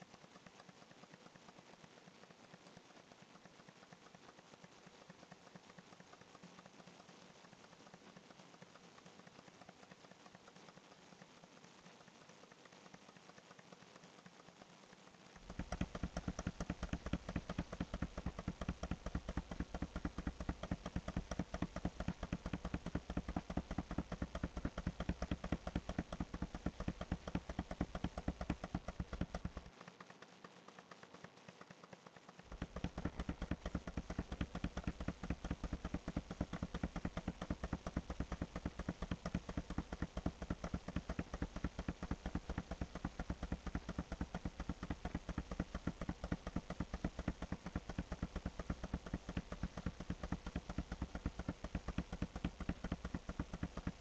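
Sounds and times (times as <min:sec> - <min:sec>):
computer mouse clicking: 0:15.4 - 0:54.0.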